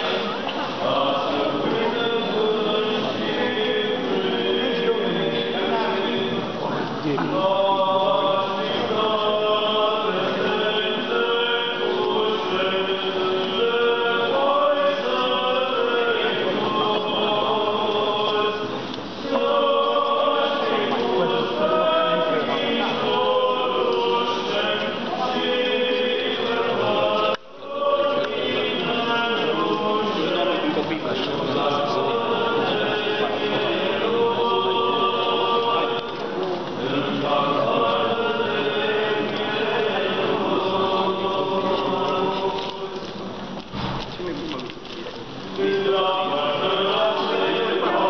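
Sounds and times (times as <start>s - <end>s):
group of voices chanting: 45.6s - 48.0s.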